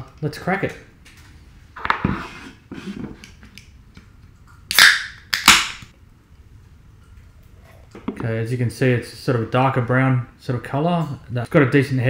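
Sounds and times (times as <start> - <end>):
beer can cracking open: 4.7 - 5.9.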